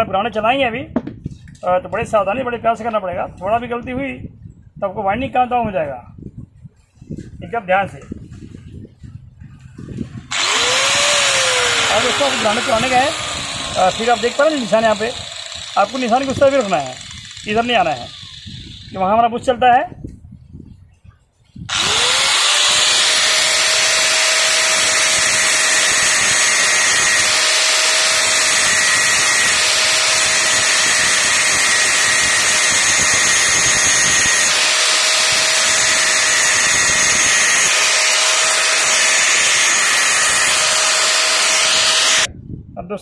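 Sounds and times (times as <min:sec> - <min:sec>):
angle grinder grinding steel: 0:10.3 - 0:19.3, 0:21.7 - 0:42.3.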